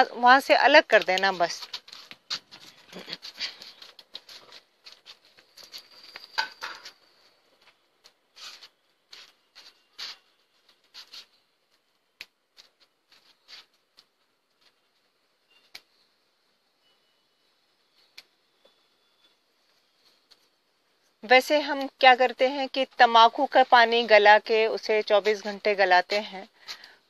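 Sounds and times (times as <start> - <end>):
rustling vine leaves: 0.0 - 17.0.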